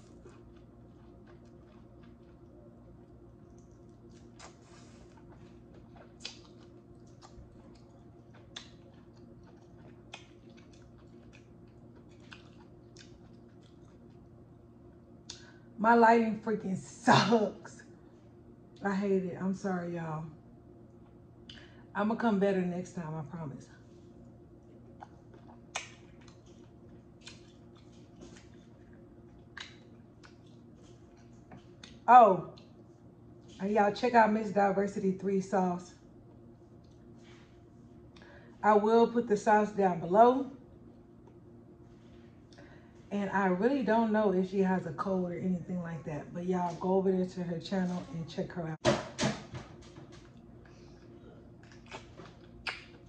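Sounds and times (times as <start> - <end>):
wet chewing and smacking: 0.0 - 14.6, 24.0 - 33.6, 36.6 - 37.2, 50.1 - 53.0
low steady hum: 0.0 - 53.0
sharp mouth clicks: 51.6 - 53.0.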